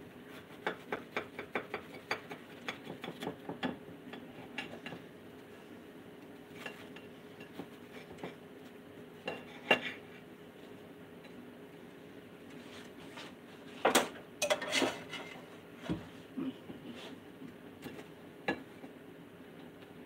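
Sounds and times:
metal clattering on plate: 14.4s - 15.4s
knife scraping against plate: 14.4s - 15.5s.

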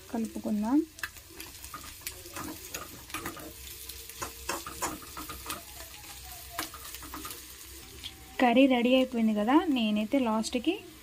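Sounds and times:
faint sizzle of hot oil: 0.0s - 11.0s
spoon scraping and clinking a pan: 1.6s - 5.8s, 6.6s - 7.6s.

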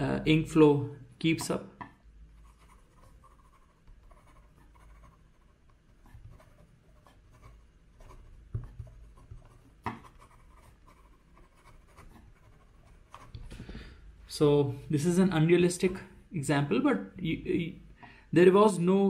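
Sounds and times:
pen scratching on paper: 2.4s - 13.4s
pen tapping: 8.5s - 10.2s.

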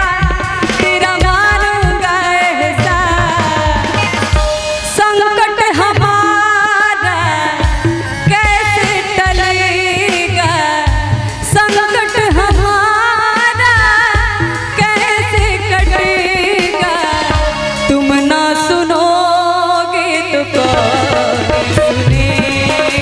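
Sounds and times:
tabla strokes: 0.0s - 23.0s
woman singing into a microphone: 0.0s - 23.0s
harmonium drones: 14.5s - 23.0s.

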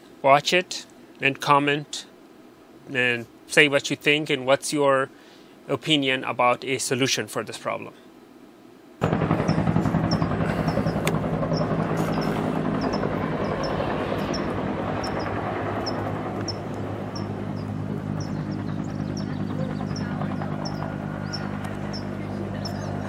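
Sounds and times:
low engine drone: 9.0s - 23.0s
small bird chirping: 9.5s - 23.0s.

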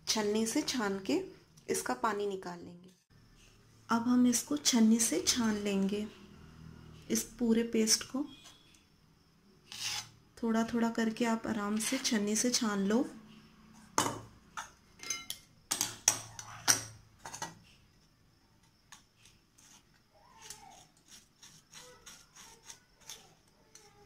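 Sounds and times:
spoon scraping metal strainer: 9.7s - 10.2s.

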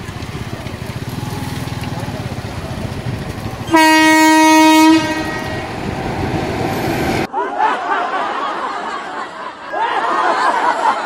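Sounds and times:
train rumble and wheel clatter: 0.0s - 7.3s
locomotive horn blast: 3.6s - 6.2s.

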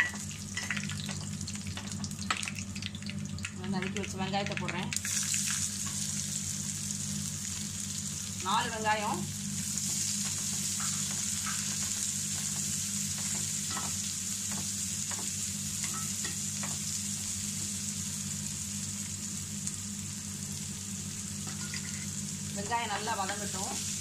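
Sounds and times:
onions sizzling in oil: 0.0s - 24.0s
steady low hum: 0.0s - 24.0s
metal spoon scraping a pan: 21.5s - 22.1s.

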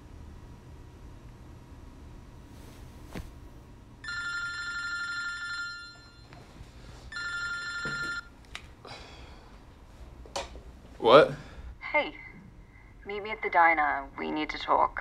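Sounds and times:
telephone ringing: 4.0s - 6.5s, 7.1s - 8.3s.

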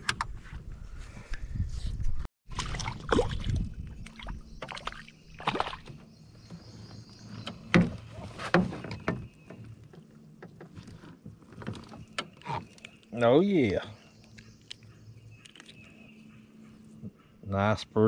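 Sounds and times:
knocks and bumps in a boat: 4.6s - 12.7s.

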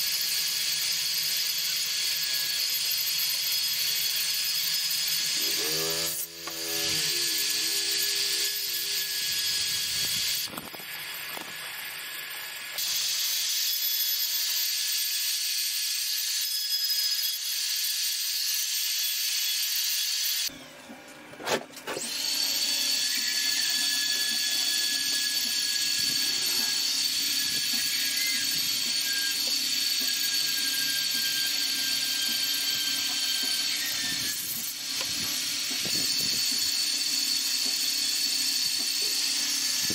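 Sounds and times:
rotary tool grinding wood: 0.0s - 11.7s, 21.8s - 39.9s.

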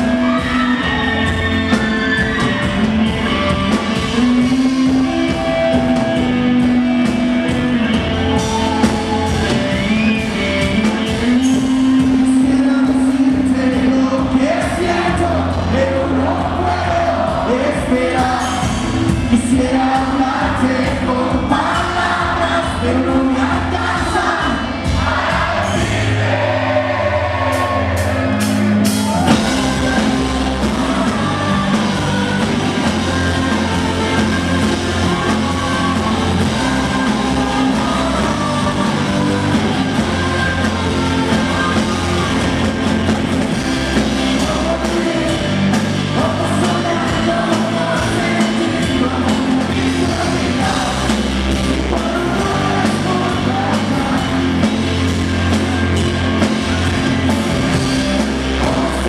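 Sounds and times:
rock band playing live: 0.0s - 59.0s
sung vocals: 0.0s - 59.0s.

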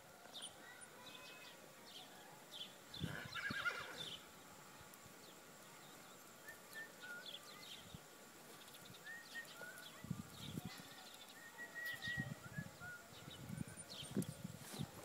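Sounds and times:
horse whinnying: 3.1s - 4.2s.

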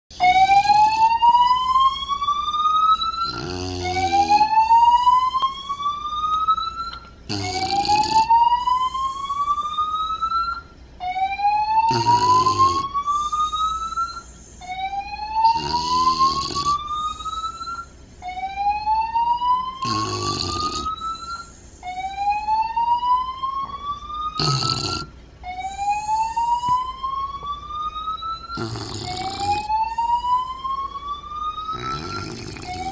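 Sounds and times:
fire alarm whooping: 0.2s - 32.9s
dog snoring: 3.2s - 4.6s, 7.3s - 8.4s, 11.8s - 12.9s, 15.4s - 17.2s, 19.8s - 21.5s, 24.4s - 25.1s, 28.6s - 29.8s, 31.7s - 32.9s.

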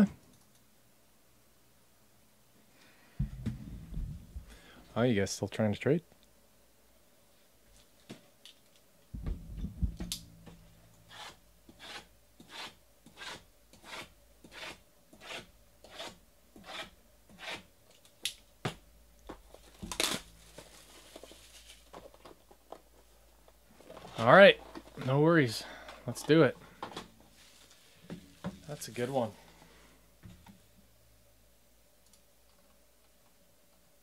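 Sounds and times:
plastic wrap ripping and crinkling: 19.7s - 21.9s.

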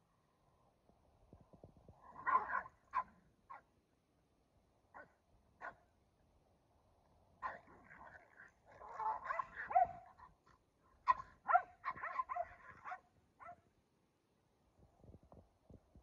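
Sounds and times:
dogs barking: 2.1s - 3.6s, 7.4s - 10.4s, 11.0s - 13.6s.

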